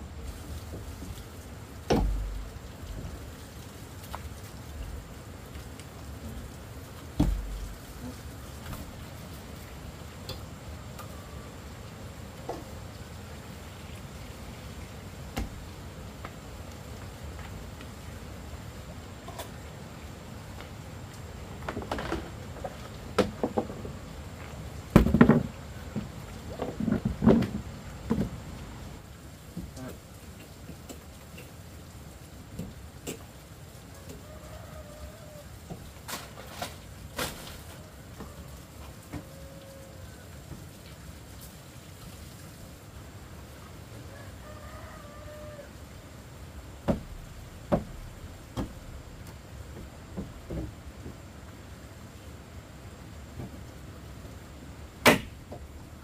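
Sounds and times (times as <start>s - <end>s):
sharp knocks: 1.9s - 2.5s, 7.2s - 7.7s, 46.8s - 49.1s, 55.0s - 55.6s.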